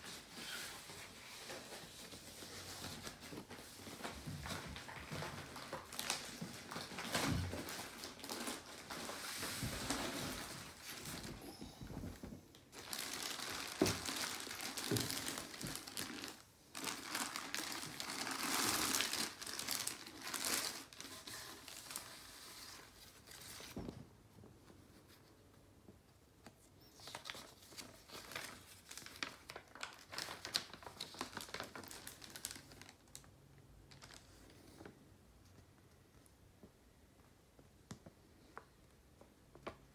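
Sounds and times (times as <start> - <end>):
plastic bag crinkling: 1.5 - 22.5, 27.0 - 34.7.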